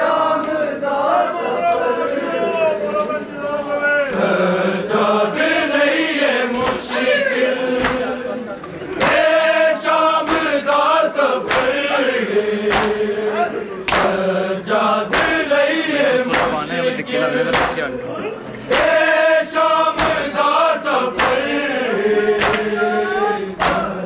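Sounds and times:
men chanting together: 0:00.0 - 0:24.0
hand slaps on chest: 0:07.8 - 0:08.1, 0:10.3 - 0:10.5, 0:11.5 - 0:11.8, 0:12.7 - 0:13.0, 0:13.9 - 0:14.2, 0:16.3 - 0:16.6, 0:17.5 - 0:17.8, 0:20.0 - 0:20.3, 0:21.2 - 0:21.4, 0:22.4 - 0:22.7, 0:23.6 - 0:23.9.

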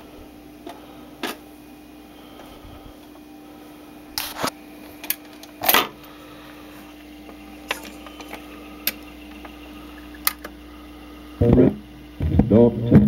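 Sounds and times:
steady low hum: 0:00.0 - 0:13.0
record changer clicks and clunks: 0:04.1 - 0:06.1, 0:06.8 - 0:10.7.

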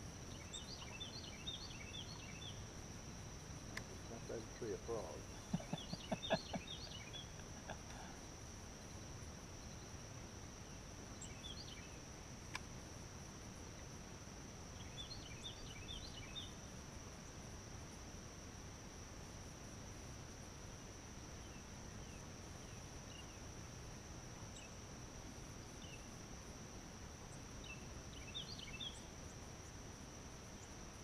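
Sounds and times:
insects chirring: 0:00.0 - 0:31.0
bird chirping: 0:00.3 - 0:02.6, 0:03.8 - 0:08.1.

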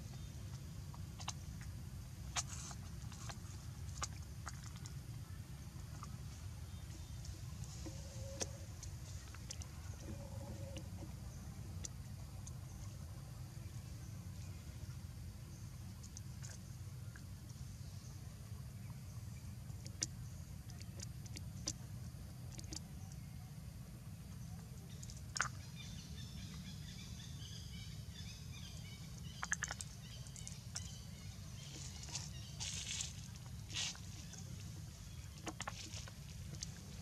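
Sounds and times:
faint bird chirping: 0:00.0 - 0:37.0.

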